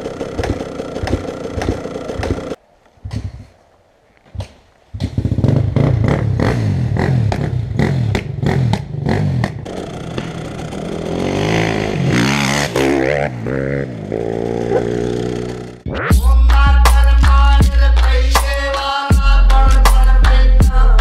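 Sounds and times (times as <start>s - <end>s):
dirt bike engine revving: 0.0s - 2.6s, 5.0s - 15.9s.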